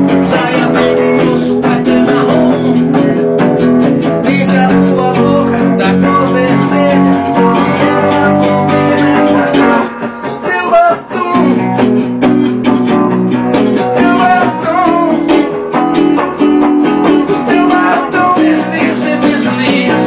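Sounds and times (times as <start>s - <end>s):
electric guitar playing: 0.0s - 20.0s.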